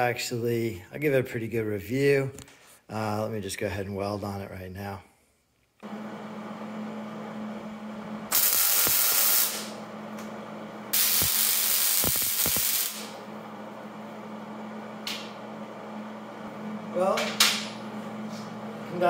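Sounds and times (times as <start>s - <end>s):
arc welding crackling sizzle: 8.3s - 9.8s, 10.9s - 13.2s.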